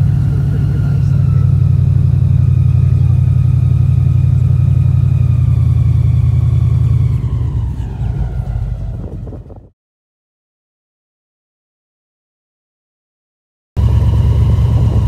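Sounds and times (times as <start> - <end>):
boat engine droning: 0.0 - 9.7, 13.8 - 15.0.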